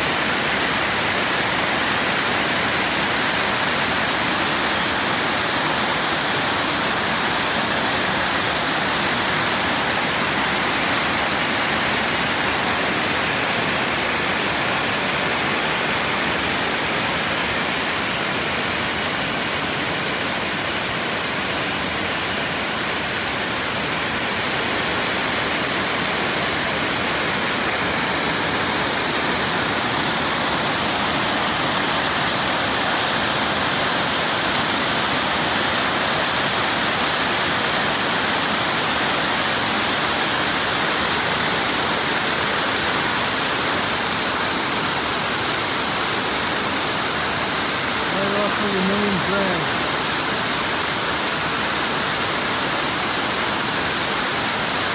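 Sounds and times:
water rushing over spillway: 0.0 - 54.9.

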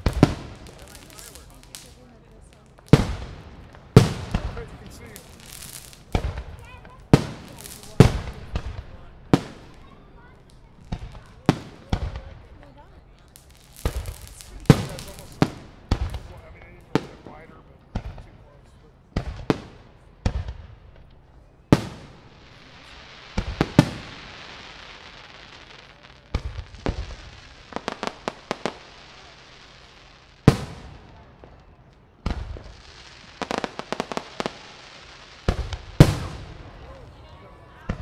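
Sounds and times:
steady hiss: 0.0 - 12.4, 13.2 - 18.4, 20.6 - 37.2
crackling firework pops: 0.0 - 18.4, 19.2 - 37.2, 37.8 - 38.0
firework shells bursting: 13.4 - 16.3.

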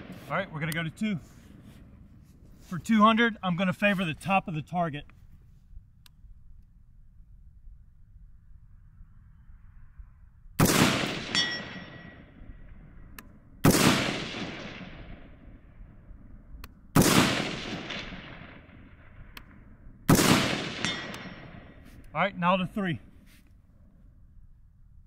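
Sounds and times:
rifle shots echoing: 0.0 - 1.0, 10.6 - 12.8, 13.6 - 15.8, 17.0 - 21.9
metallic ring of steel target: 11.1 - 12.5, 20.8 - 21.8.

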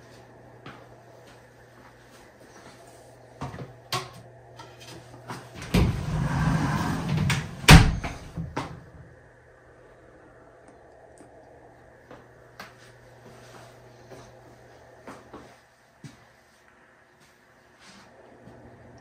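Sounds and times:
glass door rolling on metal track: 5.6 - 8.3.

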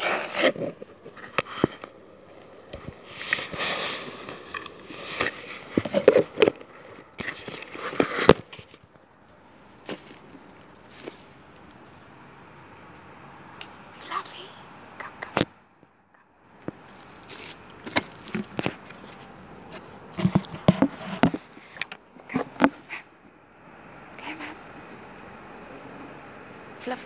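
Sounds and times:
crackling rustle: 0.0 - 13.1, 16.5 - 23.1.

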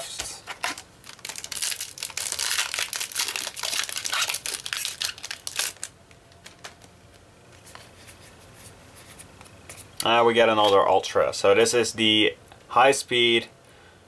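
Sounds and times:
foil wrapper crinkling: 0.5 - 6.9.

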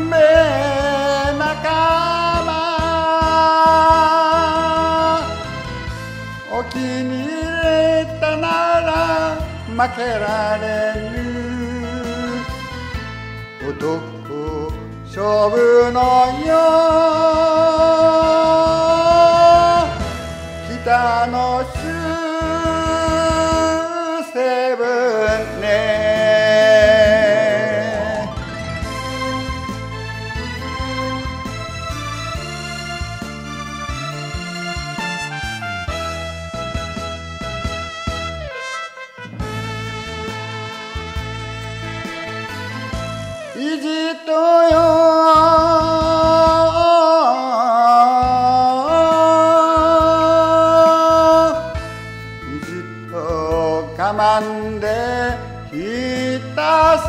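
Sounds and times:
person singing with vibrato: 0.0 - 29.6, 38.5 - 57.0
karaoke backing band: 0.0 - 57.0
person singing long held notes: 15.5 - 20.1.

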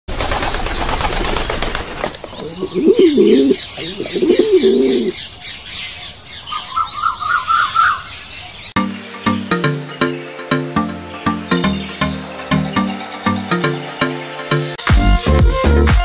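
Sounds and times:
pigeon wings fluttering: 0.1 - 2.6
small birds chirping: 0.4 - 14.6
bird trill: 0.6 - 14.5
pigeon cooing: 2.4 - 5.2.

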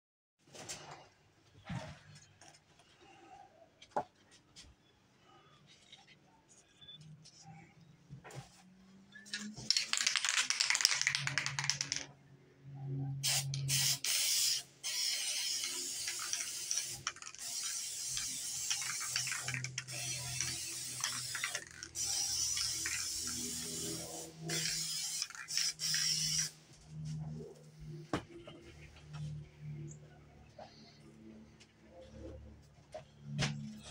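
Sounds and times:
spray paint hissing: 9.3 - 12.0, 13.2 - 26.5
spray can ball rattling: 9.3 - 12.1, 13.2 - 26.5.

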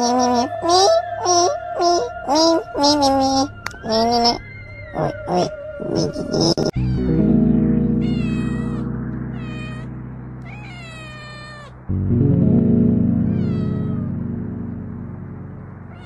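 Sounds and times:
cat meowing: 0.0 - 7.2, 7.9 - 11.9, 13.2 - 14.2
background music with low chords: 0.0 - 11.2, 11.8 - 16.0.

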